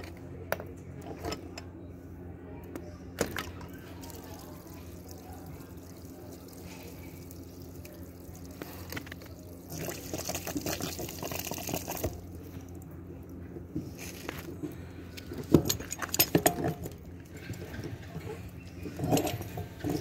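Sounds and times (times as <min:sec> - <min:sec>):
water spurting from burst pipe: 0:04.0 - 0:12.2.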